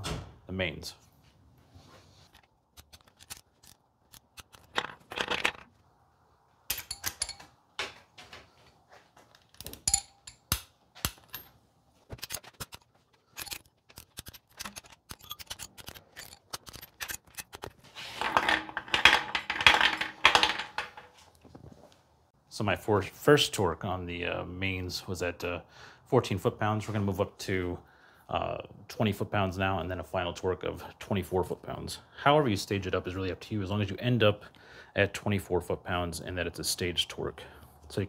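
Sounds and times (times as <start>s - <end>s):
clatter of handling: 6.7s - 21.6s.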